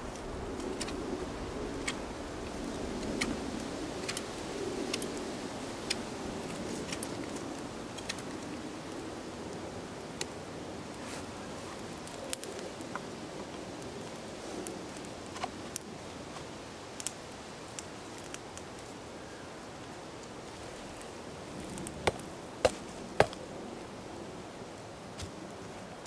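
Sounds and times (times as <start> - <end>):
wood fire crackling: 0.0 - 26.0.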